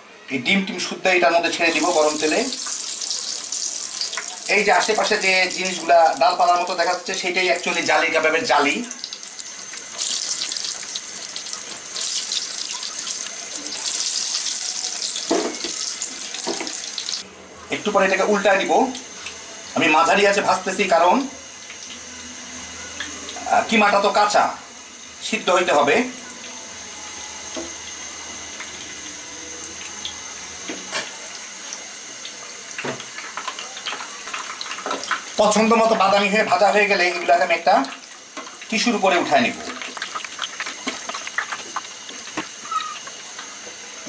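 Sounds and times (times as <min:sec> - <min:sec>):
food deep-frying in oil: 0:01.4 - 0:44.0.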